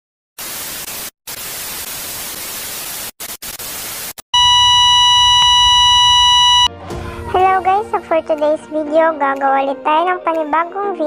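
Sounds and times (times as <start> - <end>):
static hiss: 0.4 - 6.7
electronic beep tone: 4.4 - 6.7.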